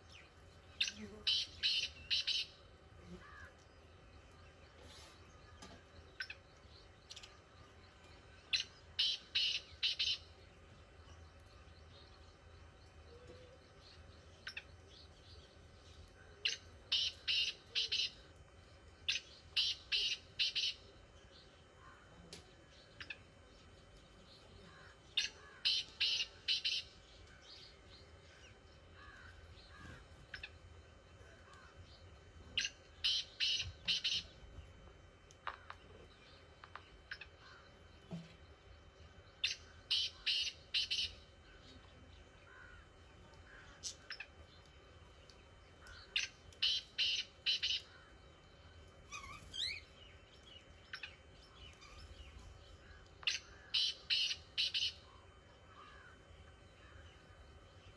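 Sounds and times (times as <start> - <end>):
francolin calling: 0.8 - 2.6, 8.5 - 10.3, 16.4 - 18.2, 19.1 - 20.8, 24.7 - 27.0, 32.6 - 34.3, 39.4 - 41.2, 45.8 - 48.1, 49.1 - 56.2
faint bird chirps: 0.8 - 34.7, 35.4 - 57.9.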